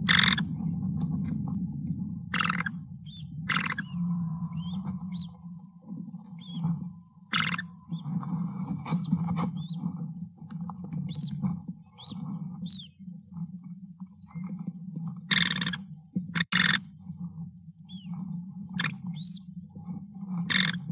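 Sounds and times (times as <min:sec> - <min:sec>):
steady low hum: 0:00.0 - 0:20.9
thin high chirps: 0:02.4 - 0:05.4, 0:07.3 - 0:08.0, 0:18.8 - 0:19.4.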